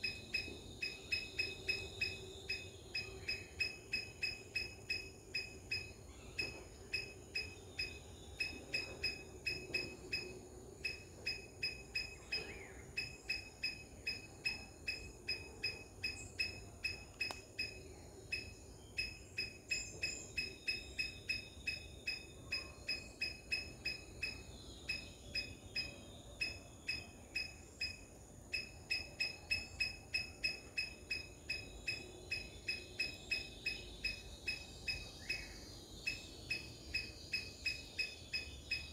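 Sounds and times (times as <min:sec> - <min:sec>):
high-pitched chirp: 0:00.0 - 0:28.0.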